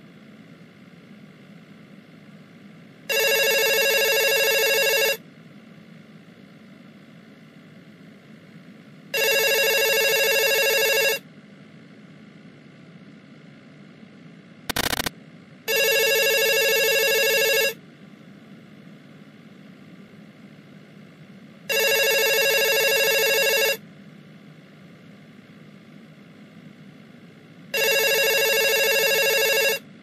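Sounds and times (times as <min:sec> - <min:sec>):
low steady hum: 0:00.0 - 0:30.0
phone ringing: 0:03.1 - 0:05.2, 0:09.2 - 0:11.2, 0:14.7 - 0:15.1, 0:15.7 - 0:17.8, 0:21.7 - 0:23.8, 0:27.8 - 0:29.8.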